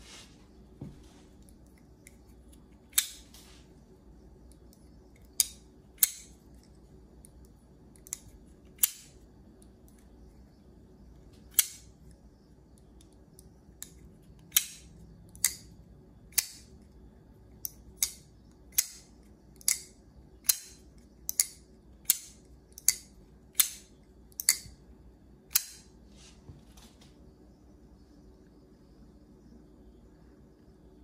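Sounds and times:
folding knife clicking open and shut: 0:02.9 - 0:03.2, 0:05.3 - 0:06.3, 0:11.5 - 0:11.9, 0:13.8 - 0:15.7, 0:16.3 - 0:16.7, 0:17.6 - 0:24.7, 0:25.5 - 0:25.9.

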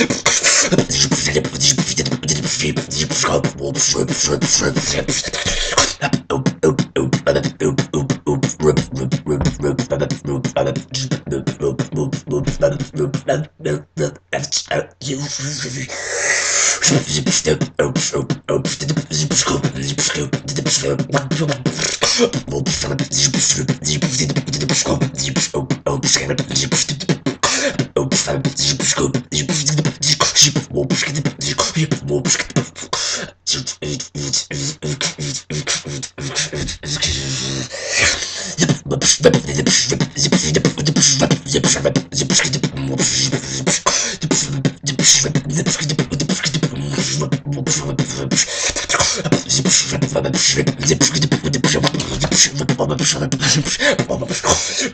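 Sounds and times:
man beatboxing: 0:00.0 - 0:54.9.

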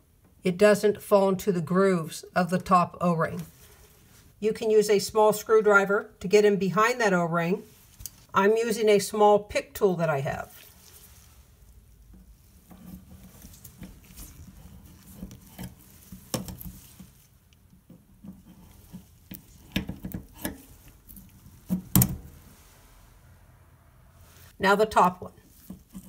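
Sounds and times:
gloved hands rubbing: 0:10.4 - 0:23.1, 0:25.4 - 0:26.0
metal pick scraping metal faucet: 0:18.2 - 0:22.1.

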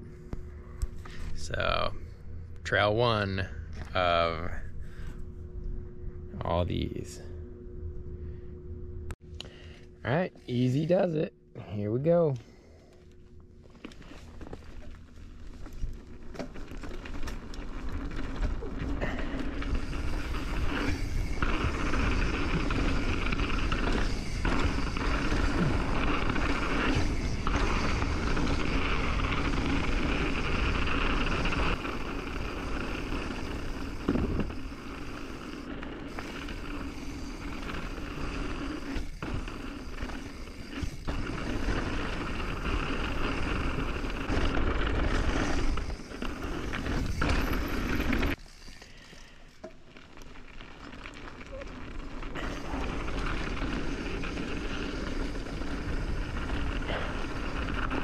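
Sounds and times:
bike knocking and rattling: 0:13.6 - 0:58.0
tyre and wind noise: 0:13.7 - 0:48.8, 0:49.8 - 0:58.0.

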